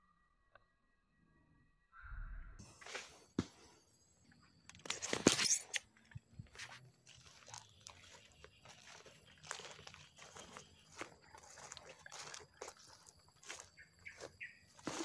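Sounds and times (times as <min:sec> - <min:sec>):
footsteps through weeds: 0:06.4 - 0:15.0
dry leaves crackling and rustling: 0:06.6 - 0:15.0.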